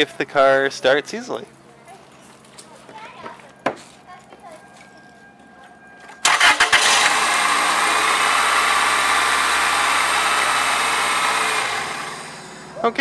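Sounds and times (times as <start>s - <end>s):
car engine cranking and starting: 6.2s - 13.0s
car engine running: 6.2s - 13.0s.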